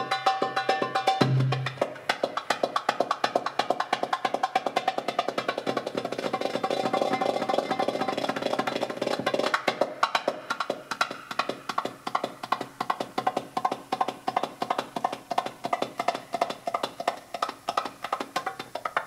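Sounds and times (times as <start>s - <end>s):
goblet drum played with fingers: 0.0s - 19.0s.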